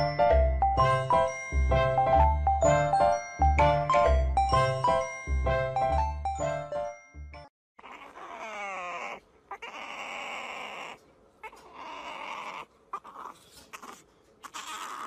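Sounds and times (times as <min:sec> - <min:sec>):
puppy whining and squealing: 0:07.8 - 0:15.0.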